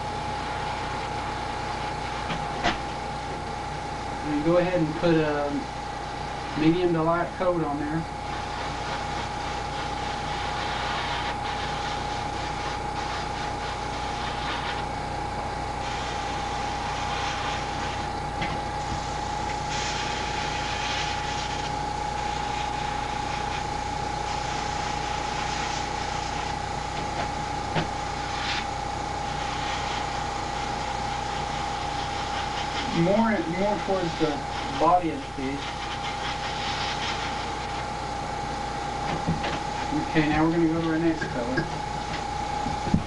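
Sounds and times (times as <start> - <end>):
airbrush compressor hum: 0.0 - 43.0
airbrush spraying hiss: 8.2 - 38.1.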